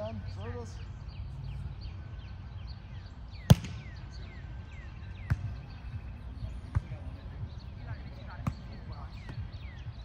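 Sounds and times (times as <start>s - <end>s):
volleyball being hit: 3.5s - 3.9s.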